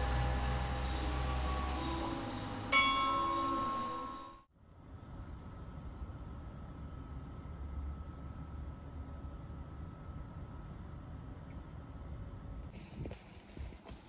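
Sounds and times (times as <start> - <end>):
background music: 0.0 - 4.4
bell-like metallic strike: 0.0 - 4.5
low hum: 0.0 - 4.5
thin high tone: 0.0 - 4.5.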